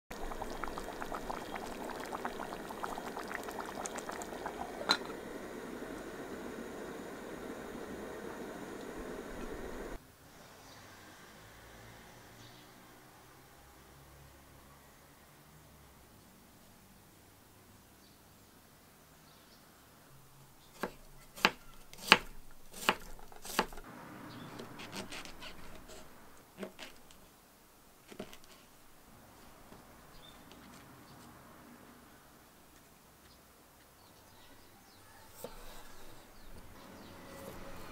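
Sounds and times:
stew bubbling in a pot: 0.0s - 10.0s, 20.8s - 23.9s
metal lid clink: 4.8s - 5.2s
knife chopping on wooden board: 20.8s - 23.8s.

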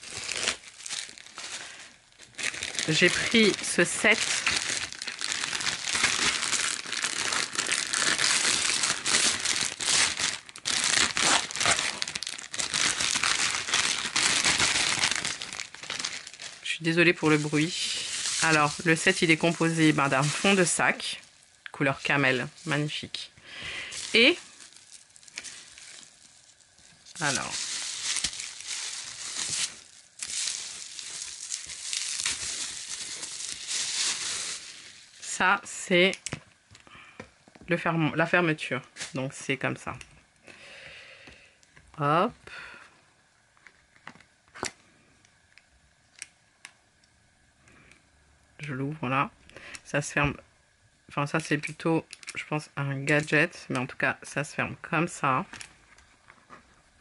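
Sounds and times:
plastic packaging crinkling: 0.0s - 37.9s, 51.3s - 54.0s.

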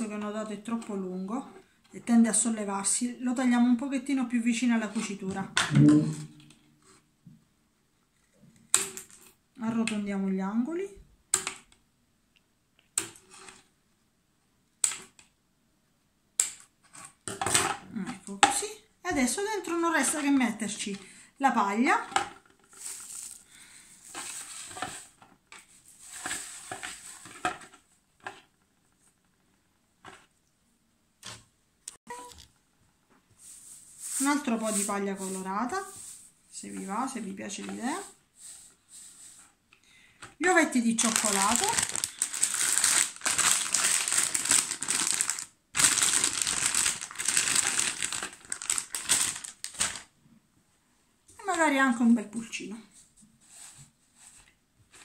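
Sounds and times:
plastic bag crinkling: 22.6s - 25.1s, 40.7s - 50.1s
straw rustling and crackling: 22.6s - 25.1s, 40.8s - 50.1s
chocolate eggs poured into basket: 22.7s - 24.8s, 41.0s - 50.0s.

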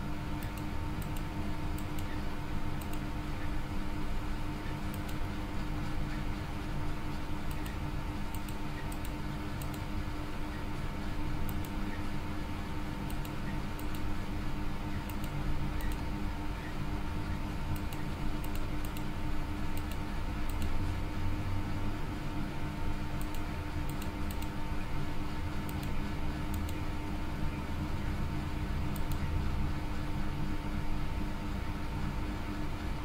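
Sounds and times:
low electrical hum: 0.0s - 33.0s
computer mouse clicks: 0.4s - 2.2s, 2.8s - 3.1s, 4.9s - 5.2s, 7.5s - 9.9s, 11.5s - 11.8s, 13.1s - 14.1s, 15.0s - 16.1s, 17.7s - 19.1s, 19.7s - 20.8s, 23.2s - 24.6s, 25.6s - 26.8s, 28.9s - 29.3s.

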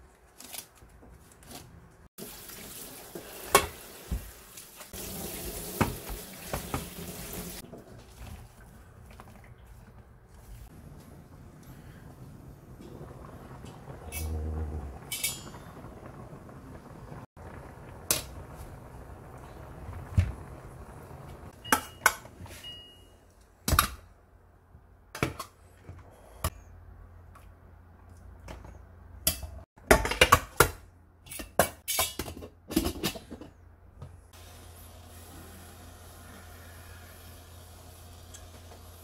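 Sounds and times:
metal pot and utensils clanking: 13.6s - 15.9s, 29.3s - 33.6s.

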